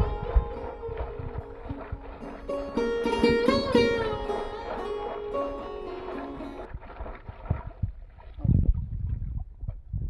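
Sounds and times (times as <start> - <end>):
string melody with sliding notes: 0.0 - 6.7.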